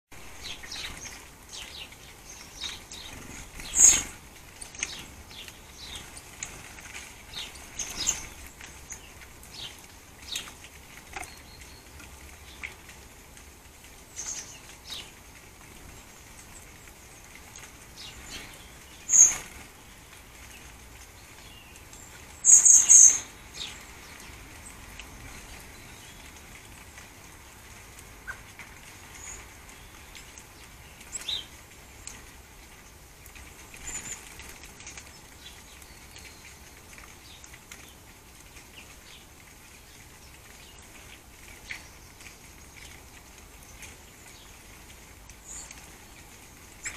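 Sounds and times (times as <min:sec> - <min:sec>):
birds chirping: 0:00.1 - 0:46.9
wing flutters: 0:00.4 - 0:11.3.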